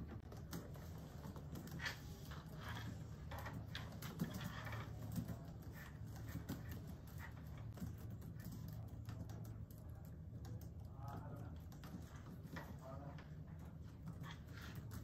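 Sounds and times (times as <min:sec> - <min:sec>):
typing on laptop keyboards: 0:00.0 - 0:15.0.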